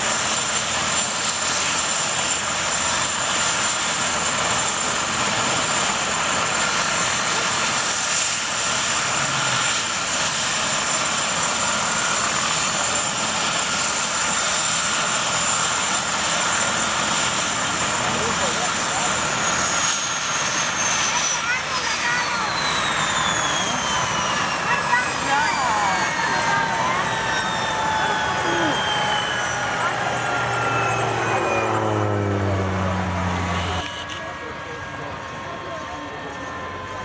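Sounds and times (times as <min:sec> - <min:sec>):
helicopter rotor and engine noise: 0:00.0 - 0:37.0
helicopter turbine whine: 0:00.0 - 0:37.0.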